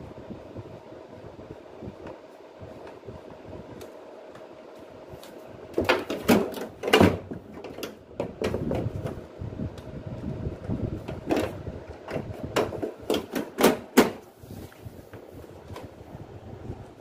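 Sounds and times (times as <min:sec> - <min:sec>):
steady background hum: 0:00.0 - 0:17.0
plastic knocks and clatter: 0:05.7 - 0:09.2, 0:10.6 - 0:14.3.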